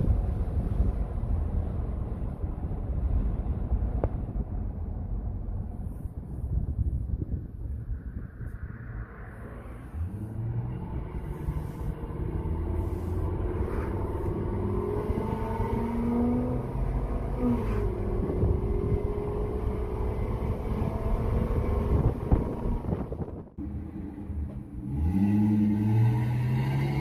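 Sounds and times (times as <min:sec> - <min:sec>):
truck engine accelerating: 0:09.5 - 0:27.0.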